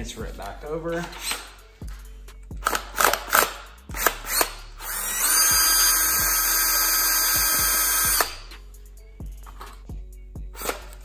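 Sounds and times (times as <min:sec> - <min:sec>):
cordless drill running: 0:04.0 - 0:08.5.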